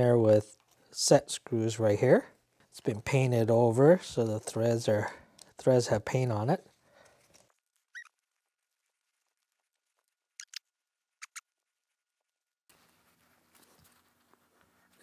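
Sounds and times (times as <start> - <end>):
hex key squeak: 7.9 - 8.1.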